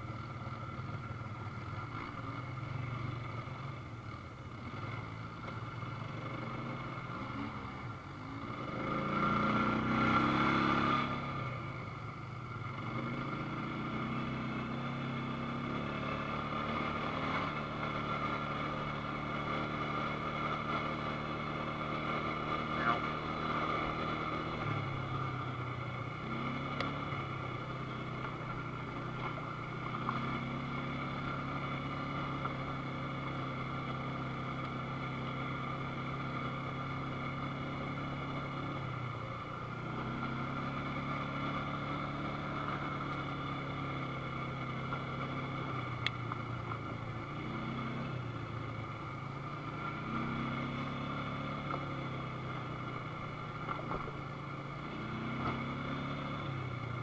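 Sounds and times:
atv engine revving: 0:01.7 - 0:11.8, 0:12.6 - 0:57.0.

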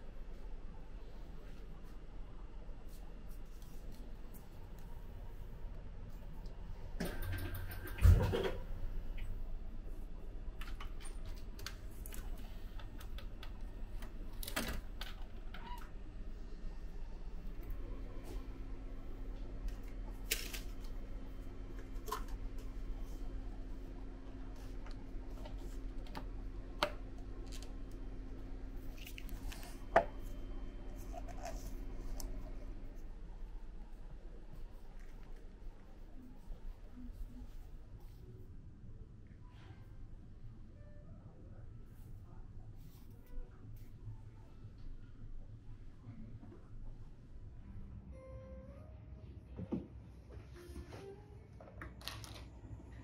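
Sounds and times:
steady low hum: 0:00.0 - 0:51.8
vending machine whirring: 0:04.9 - 0:33.9.

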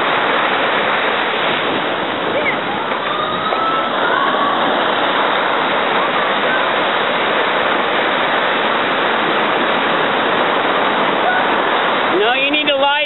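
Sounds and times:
ocean surf breaking: 0:00.0 - 0:13.0.

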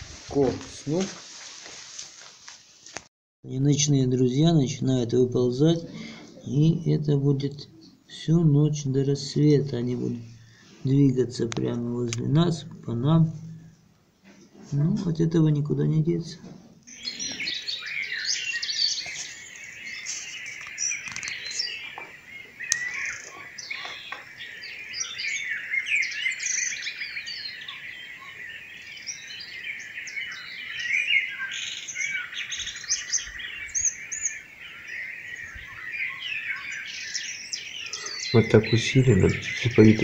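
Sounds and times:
songbirds singing: 0:03.5 - 0:40.0.

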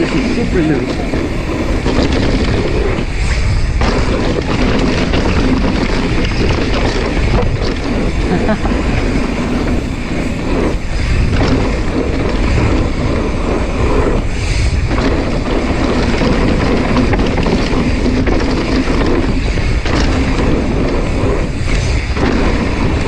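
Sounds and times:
bike tyres rumbling on dirt: 0:00.0 - 0:23.0
wind rushing over microphone: 0:00.0 - 0:23.0.

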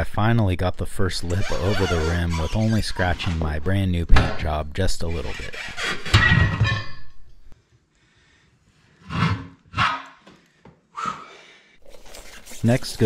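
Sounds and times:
tire irons scraping wheel rim: 0:01.3 - 0:03.5.

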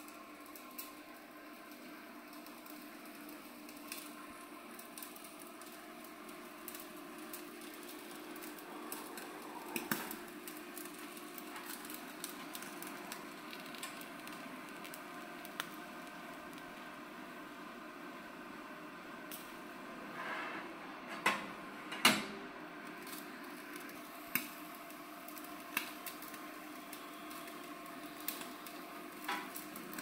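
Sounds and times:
steak sizzling: 0:00.4 - 0:17.4, 0:22.9 - 0:30.0
fat popping and crackling: 0:07.4 - 0:16.9.

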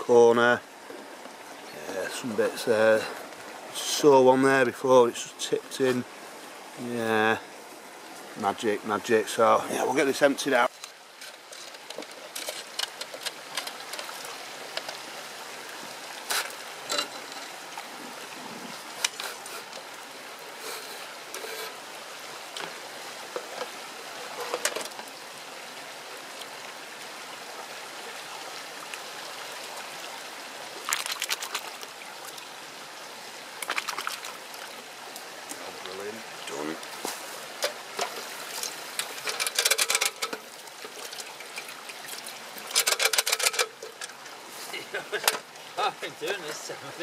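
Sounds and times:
stream water trickling: 0:00.0 - 0:47.0
metal sluice knocking and clattering: 0:10.6 - 0:15.0, 0:16.3 - 0:17.6, 0:23.4 - 0:25.1, 0:37.6 - 0:44.2.

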